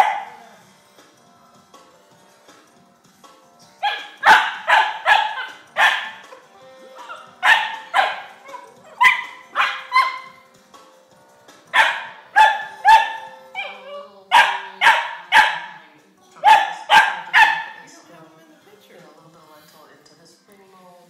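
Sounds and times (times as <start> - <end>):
puppy barking: 0.0 - 0.5, 3.8 - 6.4, 7.0 - 10.4, 11.7 - 17.8.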